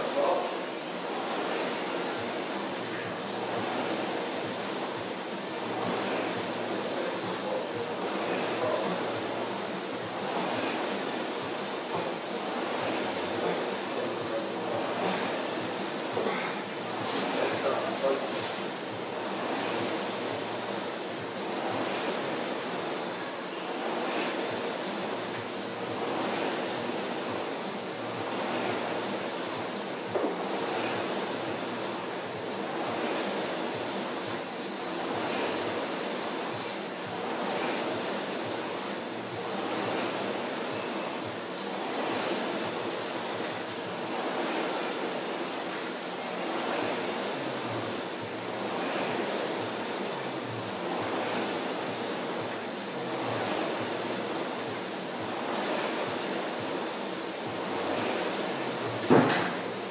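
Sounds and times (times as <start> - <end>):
rowing machine flywheel whooshing: 0.0 - 59.9
sharp knock: 59.1 - 59.6.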